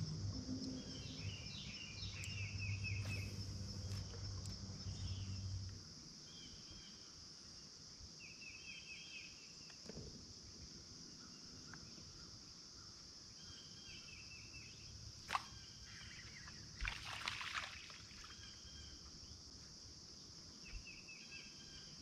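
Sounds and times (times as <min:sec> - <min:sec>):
low steady hum: 0:00.0 - 0:06.4
insects chirring: 0:00.0 - 0:22.0.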